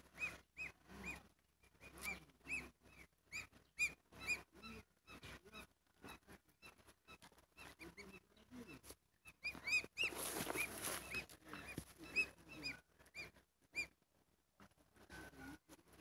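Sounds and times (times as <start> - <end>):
goslings peeping: 0.0 - 16.0
rustling: 8.7 - 14.1.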